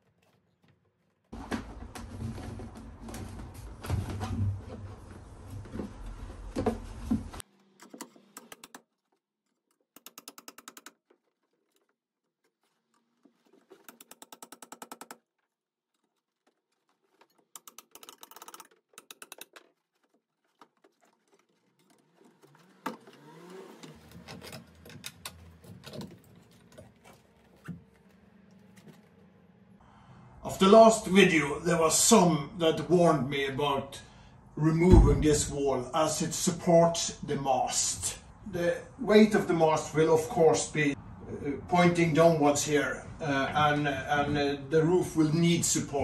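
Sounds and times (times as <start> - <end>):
tool handling and scraping: 0.0 - 29.4.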